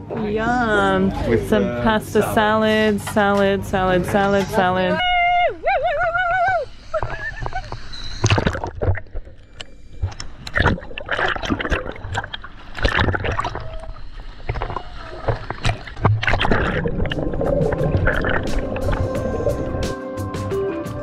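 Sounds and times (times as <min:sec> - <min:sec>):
underwater gurgling: 0:05.6 - 0:19.9
crackling clicks: 0:06.9 - 0:19.2
seawater sloshing and splashing: 0:07.0 - 0:19.8.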